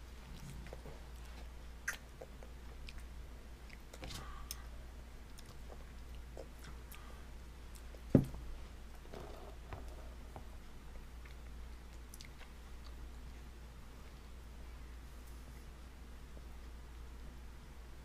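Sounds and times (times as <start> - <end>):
baby chewing and smacking: 0.3 - 4.6, 11.2 - 13.5.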